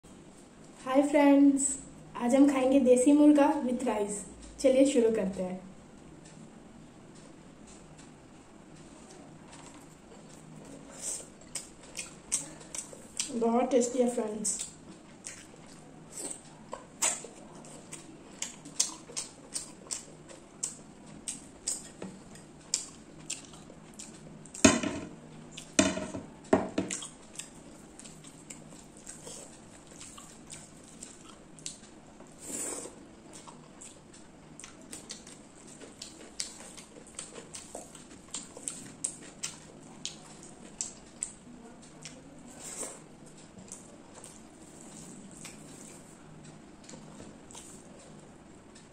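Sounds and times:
wet chewing and finger smacks: 0:11.4 - 0:13.3, 0:14.6 - 0:24.6, 0:33.4 - 0:41.4.

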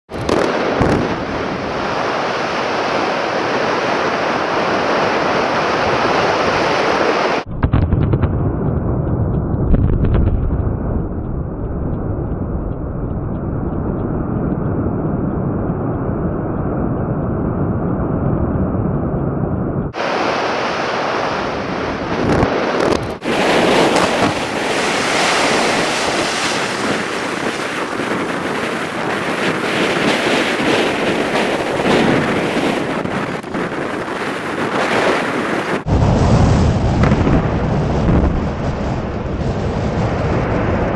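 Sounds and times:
wind buffeting microphone: 0:00.1 - 0:40.9
sharp blast detonations: 0:00.2 - 0:01.6, 0:07.4 - 0:13.0, 0:22.2 - 0:34.3, 0:35.8 - 0:40.9
deep rumble of collapsing rock: 0:07.5 - 0:20.0, 0:22.2 - 0:40.9.

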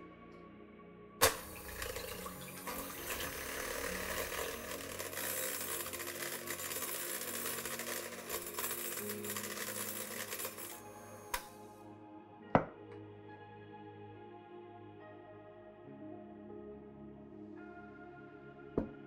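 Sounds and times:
hand mixer motor whirring: 0:01.2 - 0:11.7.

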